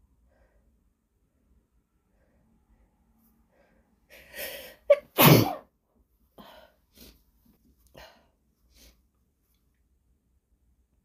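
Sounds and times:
woman breathing: 0.1 - 1.1, 2.0 - 5.0, 6.3 - 9.2
woman sneezing: 4.7 - 5.6.

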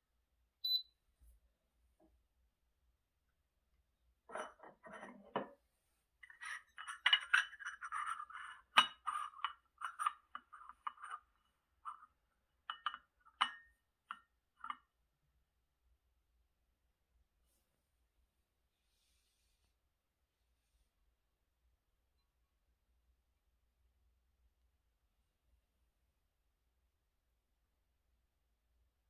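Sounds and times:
ceramic cup and saucer clinking: 6.2 - 14.9.

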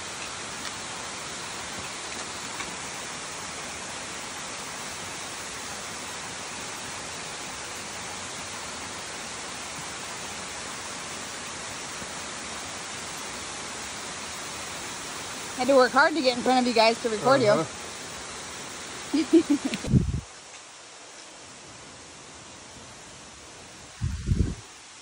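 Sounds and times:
waterfall rushing: 0.0 - 19.9.

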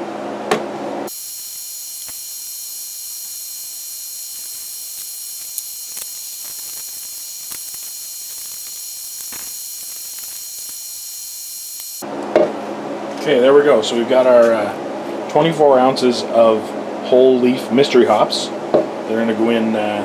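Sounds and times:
faint high whine: 1.1 - 12.0
steady hiss: 1.1 - 12.0.

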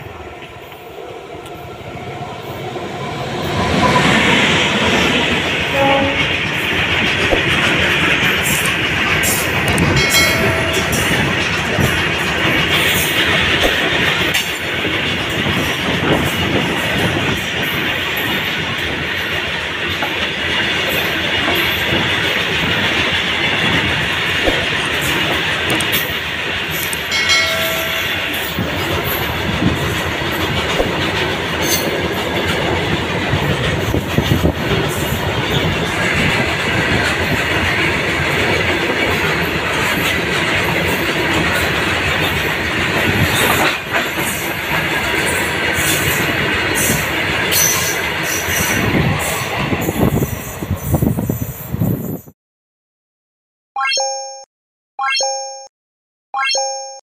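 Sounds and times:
train wheels clattering over rail joints: 4.8 - 50.3
brief pitched tone: 56.4 - 57.0.

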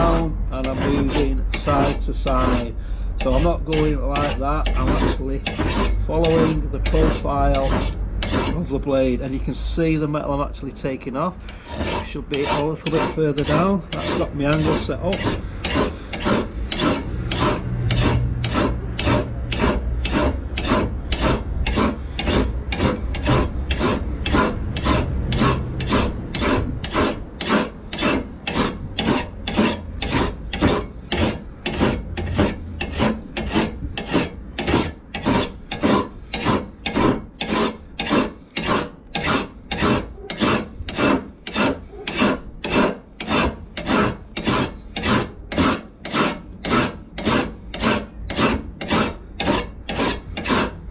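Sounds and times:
hand file rasping on steel: 0.0 - 8.9, 11.4 - 50.9.

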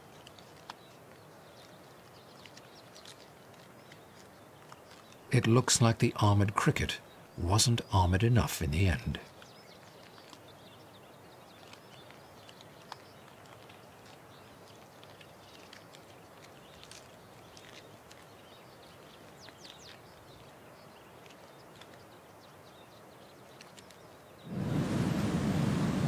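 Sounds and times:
scorpion chewing crunching clicks: 0.0 - 6.9, 7.6 - 22.2
low steady hiss: 3.8 - 9.7, 21.6 - 26.0.

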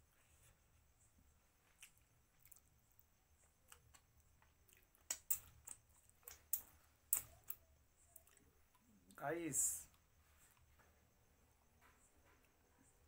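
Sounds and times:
chewing: 1.6 - 8.8
wet mouth clicks and lip smacks: 3.7 - 7.6.

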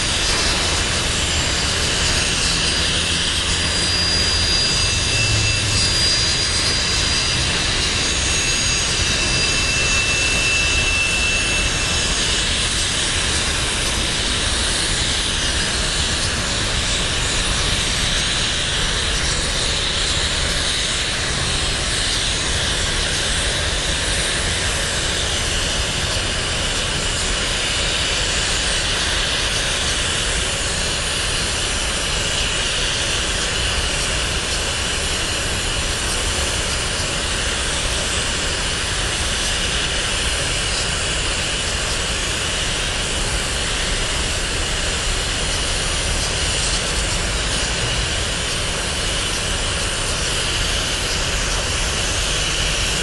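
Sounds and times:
train wheels rumbling on rails: 0.0 - 53.0
high-pitched wheel squeals: 0.8 - 12.8.

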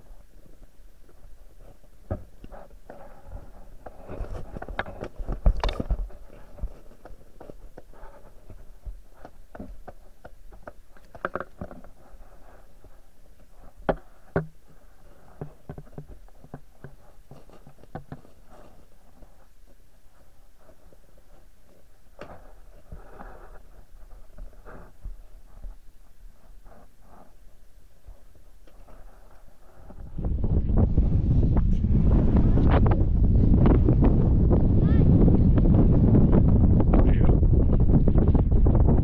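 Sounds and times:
muffled underwater knocks and clicks: 4.6 - 6.8.

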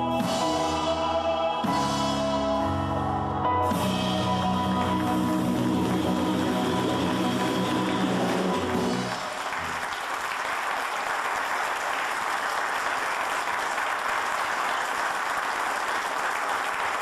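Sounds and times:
song music: 0.0 - 9.9
audience applauding: 4.6 - 17.0.

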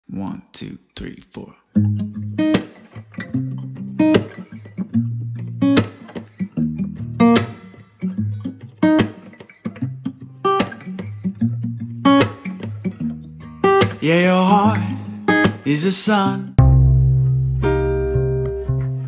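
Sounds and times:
strummed acoustic guitar: 1.7 - 19.0
bass line: 16.6 - 19.0.

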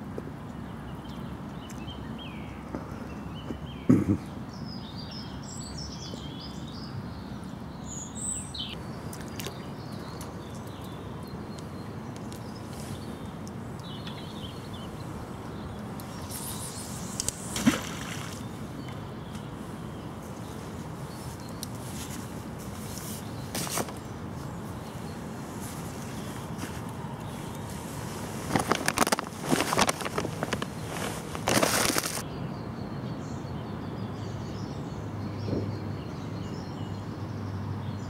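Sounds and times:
flowing river water: 8.8 - 28.6.

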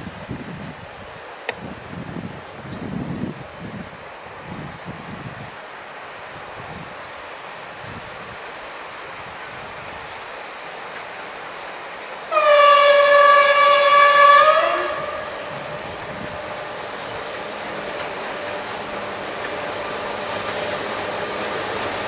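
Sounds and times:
faint freight train running: 0.0 - 22.0
diesel locomotive horn blast: 12.3 - 16.3.

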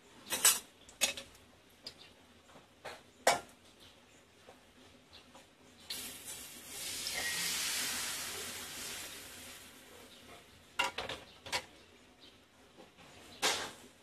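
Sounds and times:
hot oil sizzling in a wok: 5.9 - 10.1.

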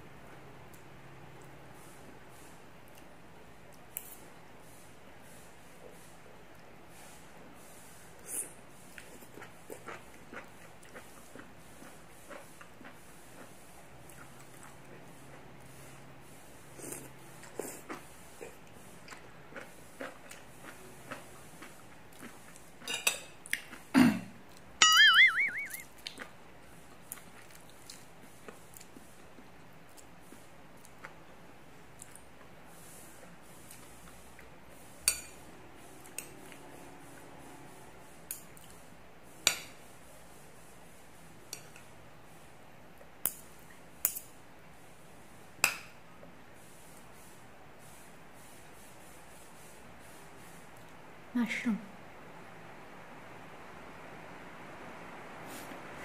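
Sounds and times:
faint chewing: 8.2 - 15.7, 16.8 - 24.7, 25.8 - 31.3, 31.9 - 32.6.

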